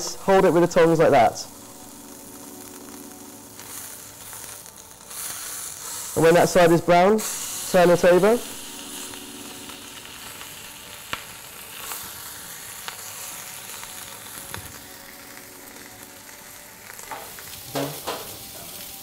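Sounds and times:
meat sizzling in a hot pan: 0:00.0 - 0:19.0.

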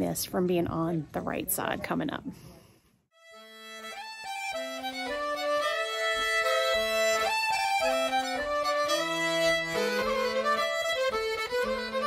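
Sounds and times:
fiddle playing a tune: 0:03.2 - 0:12.0.

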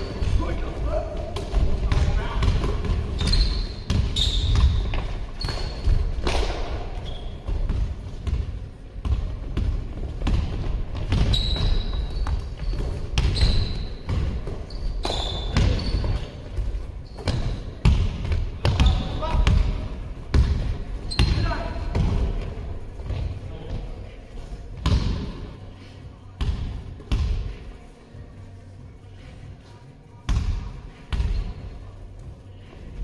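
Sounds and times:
basketball bouncing on hall floor: 0:01.2 - 0:23.8, 0:24.8 - 0:25.5, 0:26.4 - 0:27.6, 0:30.3 - 0:31.6
sneakers squeaking on court: 0:01.5 - 0:19.7, 0:20.3 - 0:22.1.

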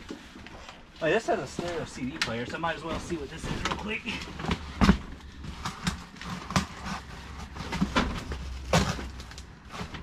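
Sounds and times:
cardboard boxes knocking and thudding: 0:02.6 - 0:10.0.

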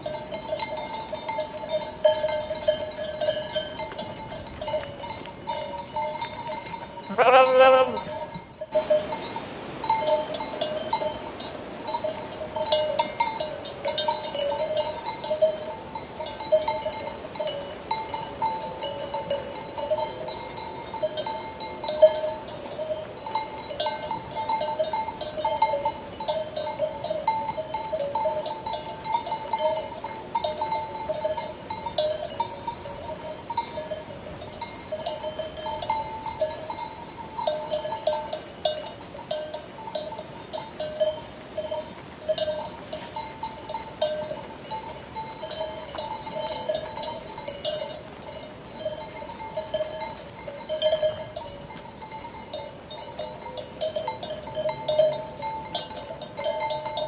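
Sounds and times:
sheep bells clanking: 0:00.0 - 0:57.0
sheep bleating: 0:07.1 - 0:08.1.

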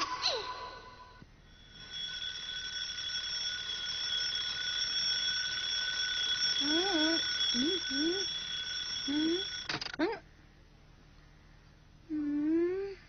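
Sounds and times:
alarm clock bell ringing: 0:01.4 - 0:10.0.

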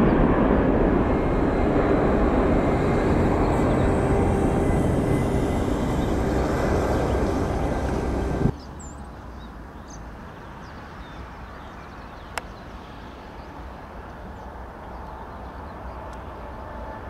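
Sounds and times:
jet engines whining: 0:00.0 - 0:08.5
low steady rumble: 0:00.0 - 0:08.5.

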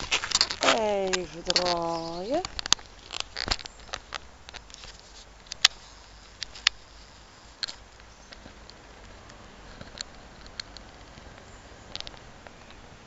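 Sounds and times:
footsteps on brick paving: 0:00.0 - 0:12.8
faint outdoor background: 0:00.0 - 0:13.0.

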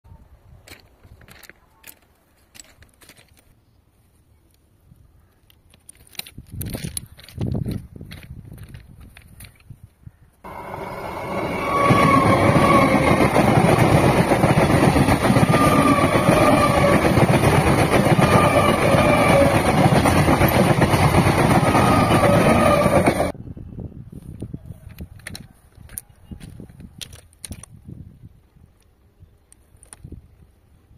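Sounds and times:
train wheels on rails: 0:10.5 - 0:23.4.

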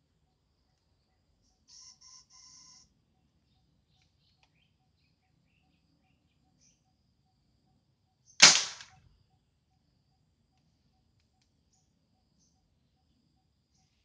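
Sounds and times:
combustion gun bang: 0:08.4 - 0:08.9.

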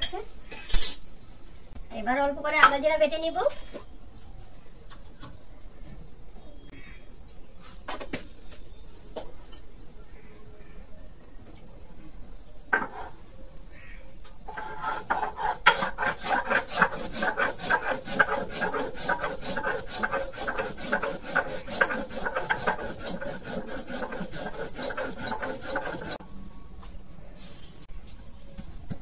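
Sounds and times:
stone roller grinding on stone slab: 0:12.7 - 0:13.2, 0:14.5 - 0:26.2.

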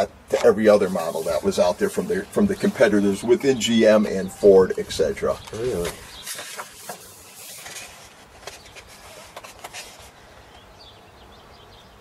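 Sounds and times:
paper pages rustling: 0:00.3 - 0:02.9, 0:04.7 - 0:10.6.

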